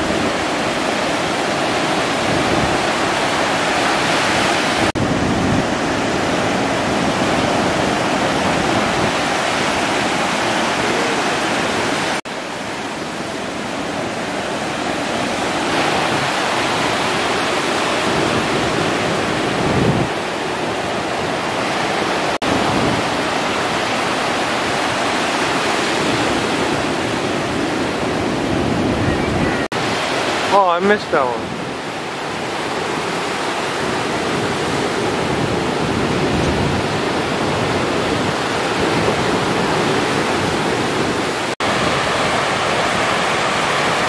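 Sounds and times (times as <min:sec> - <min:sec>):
waves crashing: 0:00.0 - 0:44.0.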